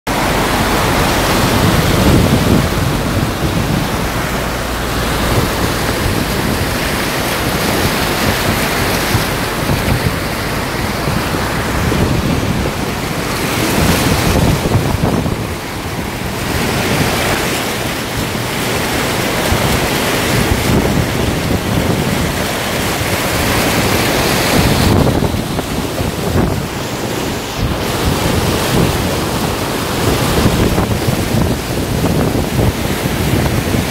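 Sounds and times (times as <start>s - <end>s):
floodwater rushing and splashing: 0.1s - 33.9s
wind buffeting microphone: 0.1s - 33.9s.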